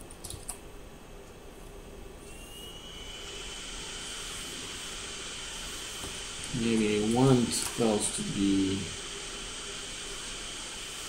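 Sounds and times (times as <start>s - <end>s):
high-pitched whine: 2.2s - 11.0s
hiss: 2.3s - 11.0s.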